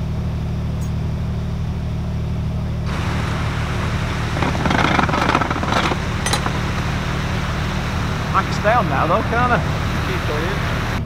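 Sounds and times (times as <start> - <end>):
rushing hiss: 2.9 - 11.0
wind buffeting microphone: 2.9 - 11.0.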